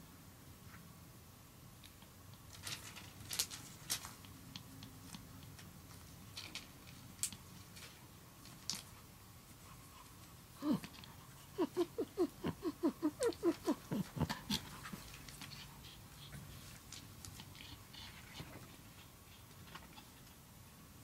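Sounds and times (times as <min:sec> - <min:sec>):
dog snorting huffs: 0:10.6 - 0:16.6.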